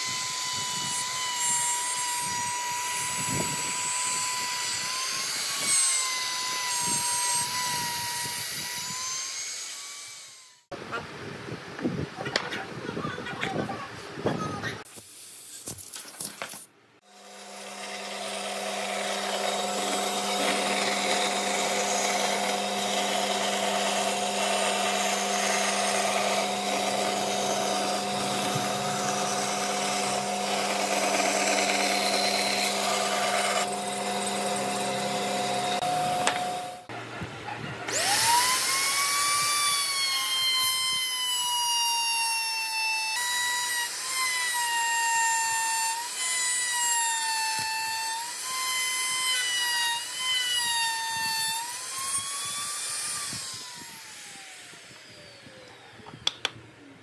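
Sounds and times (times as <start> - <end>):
bandsaw cutting wood: 0.0 - 10.7, 17.0 - 36.9, 37.9 - 55.8
trim router high whine: 17.1 - 37.0, 37.9 - 56.3.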